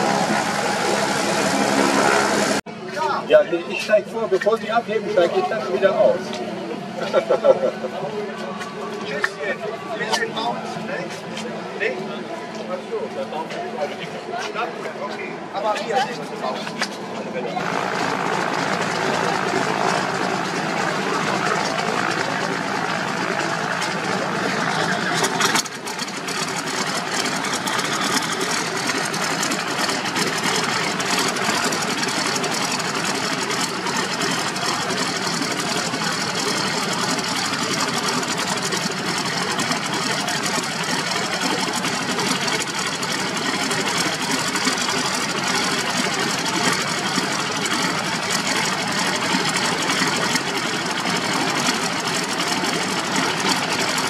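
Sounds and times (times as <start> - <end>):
piston engine idling: 0.0 - 2.6, 17.6 - 54.0.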